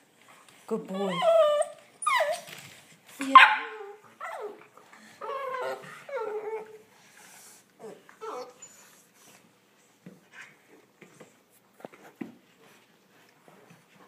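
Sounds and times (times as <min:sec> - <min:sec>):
puppies whining and yipping: 0:00.9 - 0:02.8, 0:03.7 - 0:06.9, 0:07.8 - 0:09.4.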